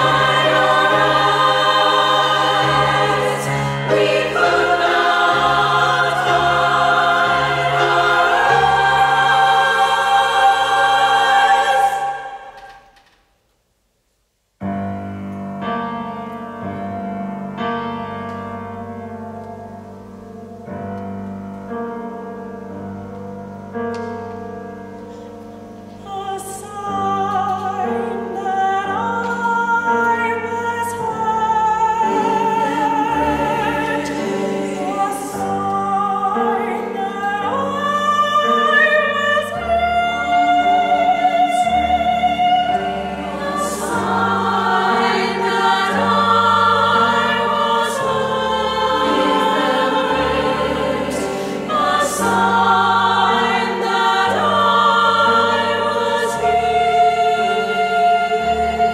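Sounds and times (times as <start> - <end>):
piano accompaniment: 0.0 - 13.0, 14.6 - 58.9
women's choir singing: 0.0 - 13.1, 26.0 - 58.9.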